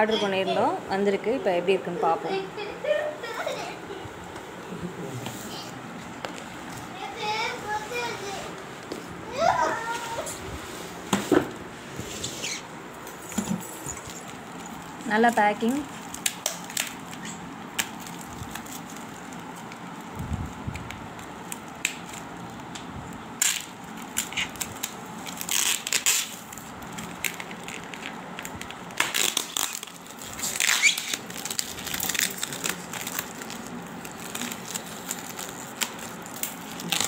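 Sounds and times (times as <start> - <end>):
plastic wrap crinkling: 12.1 - 37.0
scissors cutting plastic: 13.3 - 19.8, 23.4 - 37.0.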